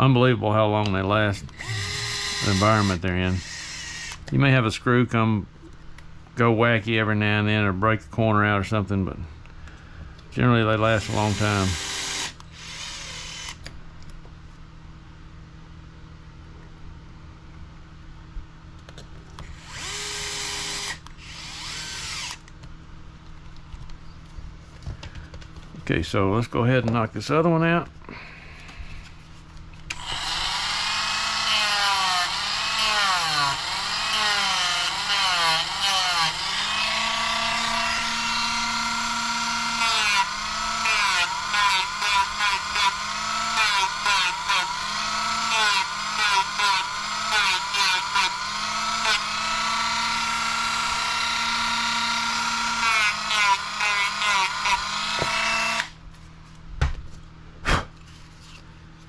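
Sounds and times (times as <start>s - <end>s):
rotary tool whining: 1.4s - 4.3s, 10.8s - 13.7s, 19.4s - 22.5s, 29.9s - 56.0s.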